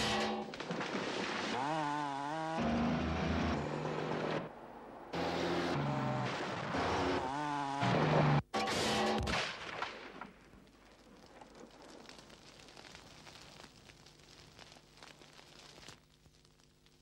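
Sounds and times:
fire crackling and popping: 0:00.0 - 0:01.6, 0:09.3 - 0:17.0.

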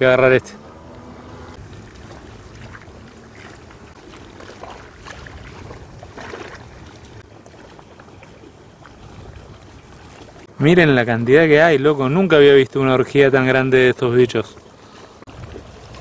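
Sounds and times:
wind rumbling on microphone: 0:00.0 - 0:11.3, 0:15.1 - 0:16.0.

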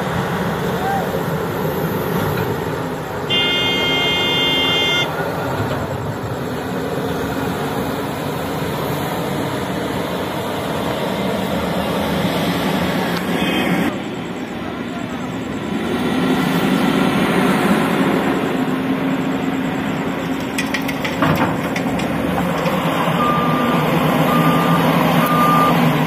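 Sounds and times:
heavy diesel machinery running: 0:00.0 - 0:26.0
vehicle horn: 0:03.3 - 0:05.2, 0:13.3 - 0:13.9.

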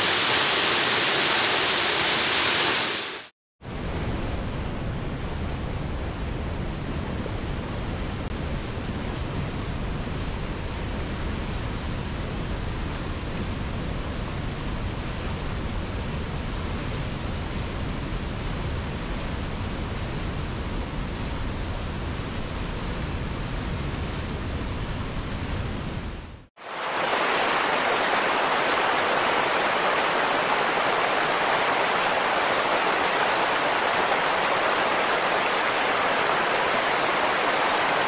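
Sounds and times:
river rushing over boulders: 0:26.6 - 0:38.0.

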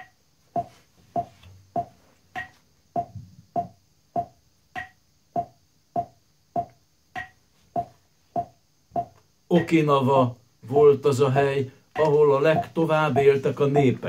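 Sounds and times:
metronome clicking: 0:00.0 - 0:09.2, 0:12.0 - 0:12.8.

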